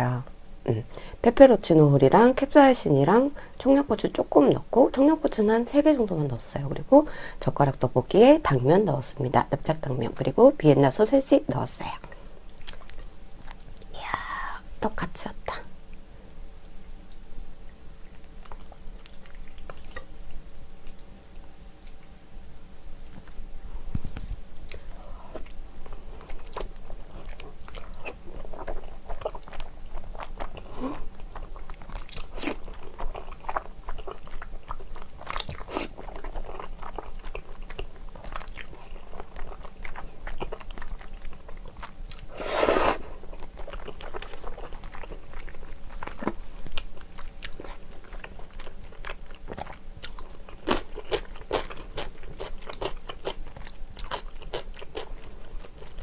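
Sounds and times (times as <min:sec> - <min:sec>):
chewing food: 0:12.5 - 0:13.9, 0:15.9 - 0:22.2, 0:24.6 - 0:42.3, 0:43.0 - 0:56.0
slurping noodles: 0:42.3 - 0:43.0.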